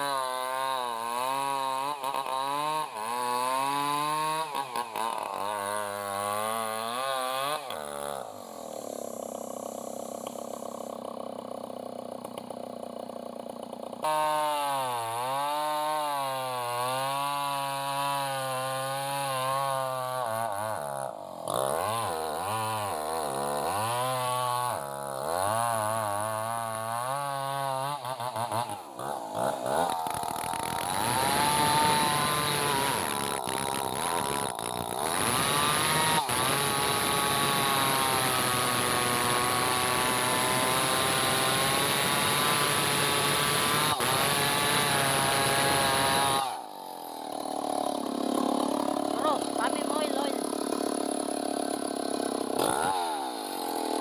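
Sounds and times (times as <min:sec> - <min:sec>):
chainsaw cutting log: 0:00.0 - 0:54.0
chainsaw revving: 0:00.0 - 0:54.0.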